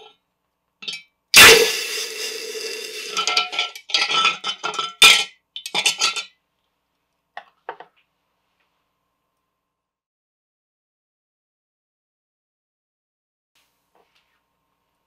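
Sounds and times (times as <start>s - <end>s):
glass jar ringing: 0.8s - 6.3s
metal clinking against glass jar: 0.8s - 6.3s
hot metal sizzling in water: 1.4s - 3.6s.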